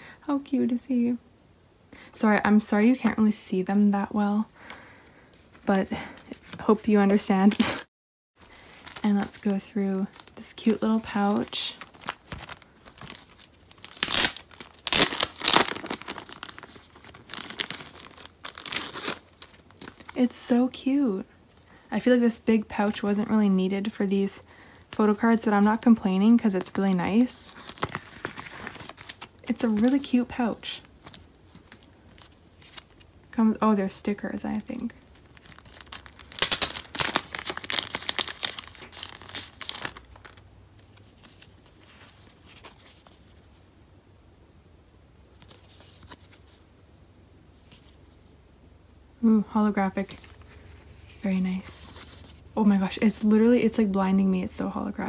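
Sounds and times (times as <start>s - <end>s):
plastic packaging crinkling: 6.2s - 7.8s, 8.4s - 20.4s, 24.3s - 33.1s, 34.5s - 43.6s.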